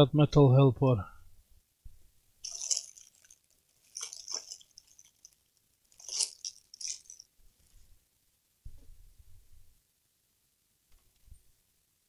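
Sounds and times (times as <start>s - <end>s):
tools rattling: 2.4s - 7.8s.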